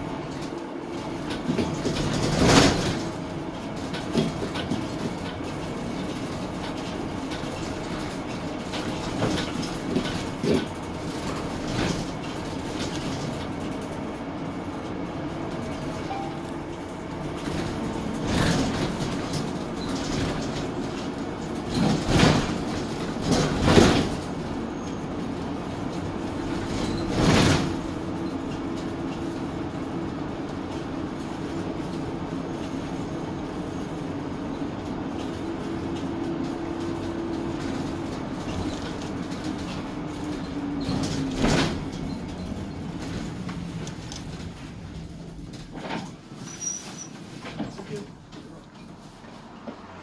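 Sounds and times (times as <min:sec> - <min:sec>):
bus engine drone: 0:00.0 - 0:50.0
road noise: 0:00.0 - 0:50.0
body rattles and jolts: 0:01.0 - 0:14.1, 0:17.3 - 0:24.5.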